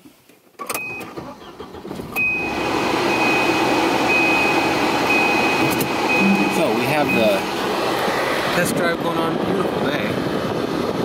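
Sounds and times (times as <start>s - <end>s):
car engine starting and running: 0.6s - 11.0s
air-conditioning blower: 2.2s - 11.0s
thin high whine: 4.2s - 7.5s.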